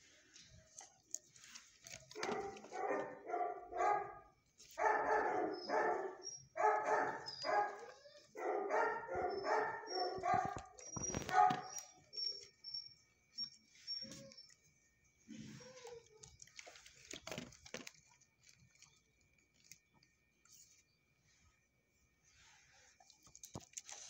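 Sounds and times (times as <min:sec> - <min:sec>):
dogs barking: 0:02.1 - 0:12.0.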